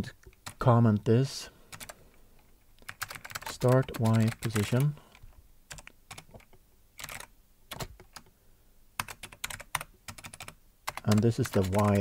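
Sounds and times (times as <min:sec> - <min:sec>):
typing on computer keyboard: 0:01.7 - 0:02.0, 0:02.8 - 0:08.3, 0:09.0 - 0:12.0.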